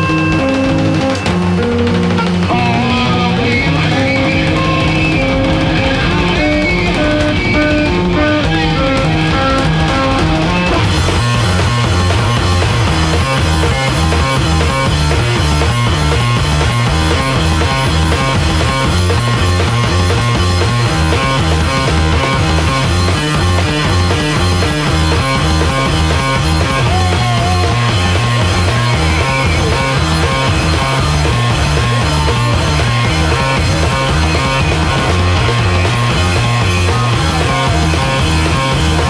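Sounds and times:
distorted bass guitar riff: 0:00.0 - 0:39.0
drum kit with cymbal wash: 0:00.0 - 0:39.0.

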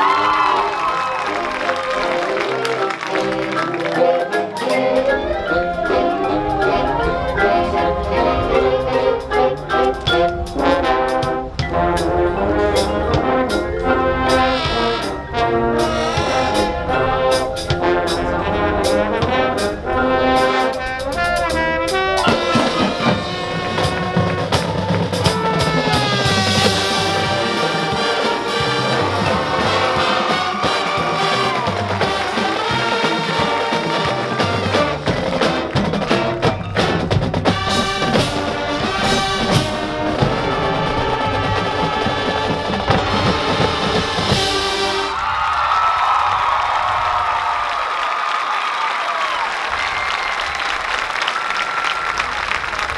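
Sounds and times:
marching band brass: 0:00.0 - 0:52.9
drums and mallet percussion: 0:01.5 - 0:19.7, 0:20.4 - 0:45.1.

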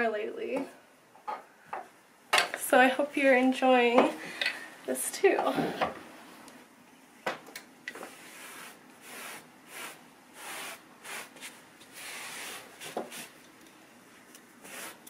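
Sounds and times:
clothes brush swishing on coat: 0:08.0 - 0:13.4.

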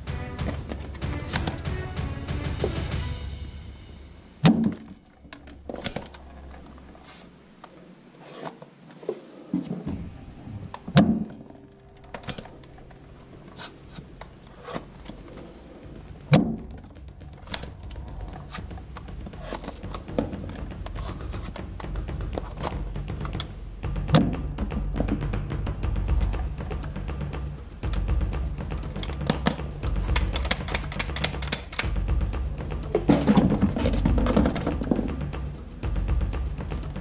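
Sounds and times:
rubbing and handling noise: 0:00.0 - 0:03.3, 0:04.4 - 0:37.0
sharp knocks and clicks: 0:26.1 - 0:37.0.

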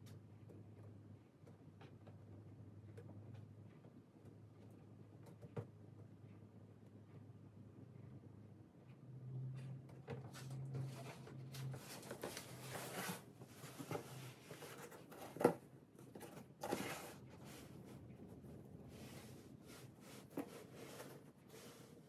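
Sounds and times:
cardboard box rubbing and scraping: 0:10.8 - 0:15.6, 0:16.6 - 0:17.8.

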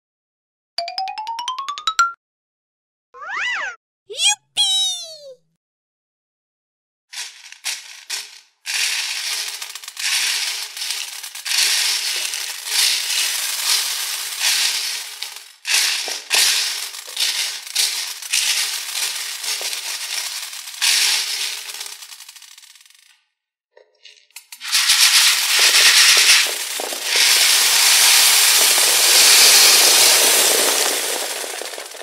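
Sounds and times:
plastic beads rattling: 0:07.1 - 0:23.1, 0:24.4 - 0:32.0
plastic scoop stirring beads: 0:07.1 - 0:23.1, 0:24.5 - 0:32.0.

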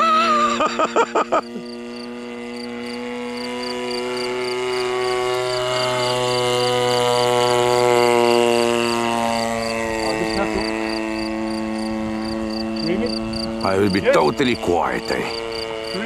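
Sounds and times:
model plane engine running: 0:00.0 - 0:16.0.

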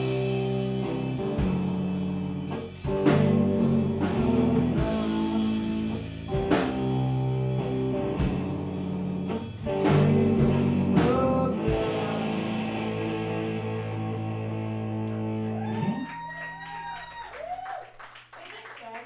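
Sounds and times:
drum kit beat: 0:00.0 - 0:14.4
distorted electric guitar chords: 0:00.0 - 0:16.0
bass guitar: 0:00.0 - 0:17.2.

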